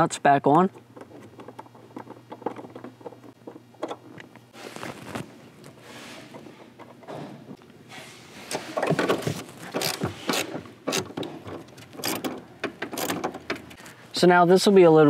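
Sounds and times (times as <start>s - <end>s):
socket wrench clicking and rattling: 9.7s - 13.8s.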